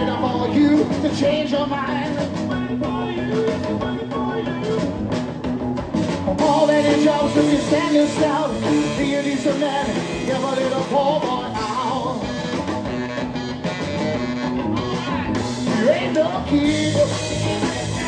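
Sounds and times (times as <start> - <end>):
drum kit: 0.0 - 18.0
guitars: 0.0 - 18.0
saxophone: 6.3 - 18.0.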